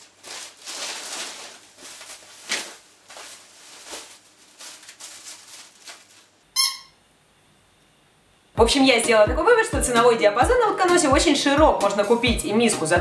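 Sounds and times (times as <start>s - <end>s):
plastic bags rustling and crinkling: 0.0s - 6.4s
short high squeak: 6.6s - 7.0s.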